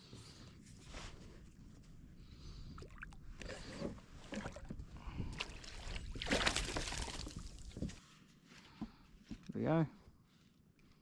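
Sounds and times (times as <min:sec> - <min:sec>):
water splashing: 0:05.4 - 0:07.6.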